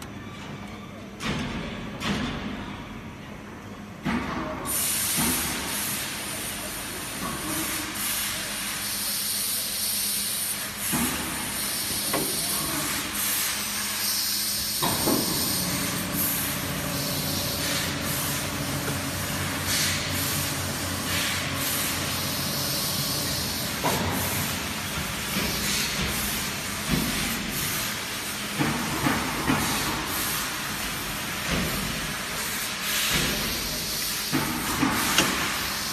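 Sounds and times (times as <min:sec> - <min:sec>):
machine pallets hissing on rails: 0:04.0 - 0:35.9.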